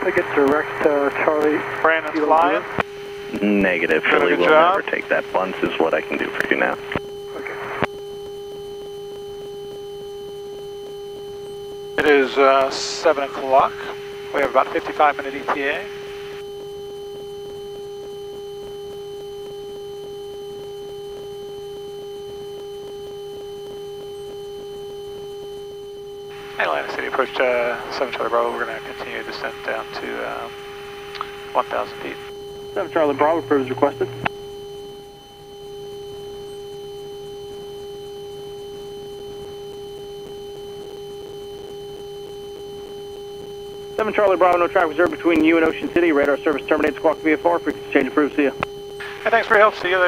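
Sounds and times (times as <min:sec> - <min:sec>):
steady electrical whine: 0:00.0 - 0:50.0.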